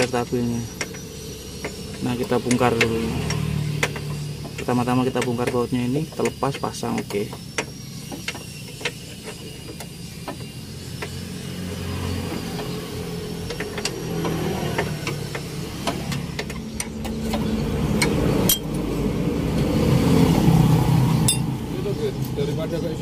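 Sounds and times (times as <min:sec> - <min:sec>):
wrench clicking on bolts: 0:00.0 - 0:11.2, 0:12.4 - 0:18.8
vehicle engine humming: 0:00.0 - 0:23.0.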